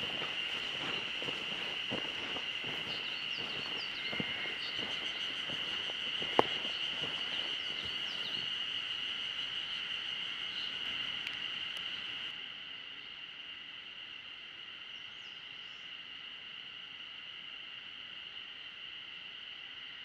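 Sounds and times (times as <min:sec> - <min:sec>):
bird chirps: 0:00.0 - 0:08.5
footsteps on leaf litter: 0:00.0 - 0:08.5
high-pitched insect drone: 0:00.0 - 0:20.0.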